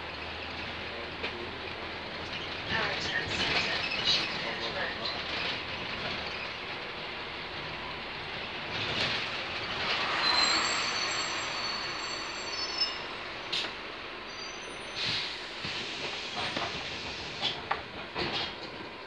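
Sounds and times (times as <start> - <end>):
bus engine and road noise: 0.0 - 19.0
thin high squealing tones: 9.8 - 13.6, 14.3 - 15.0.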